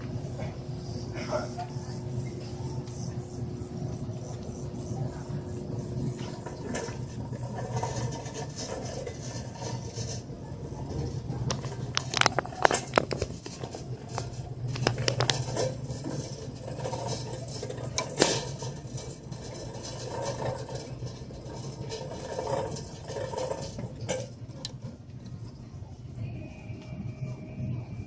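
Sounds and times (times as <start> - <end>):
shopping cart rolling: 0.0 - 28.0
wire cart frame rattling: 6.1 - 25.6.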